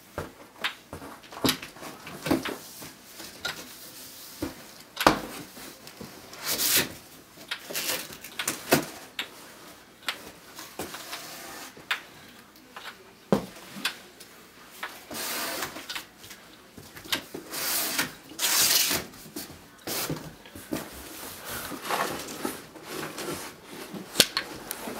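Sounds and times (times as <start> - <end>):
box rustling and scraping: 17.4 - 24.9.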